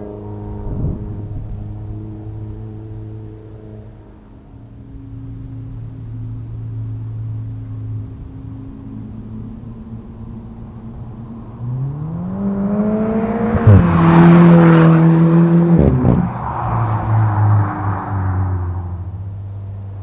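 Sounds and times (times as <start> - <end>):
car engine accelerating past: 10.2 - 20.0.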